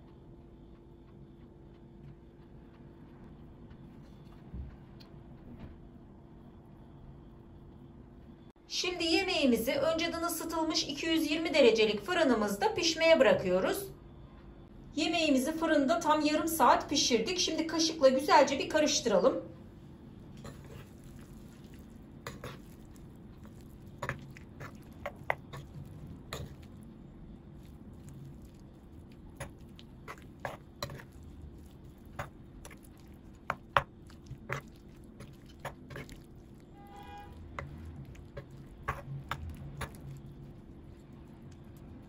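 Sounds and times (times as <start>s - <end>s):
metal spoon scraping a baking dish: 30.1s - 31.2s.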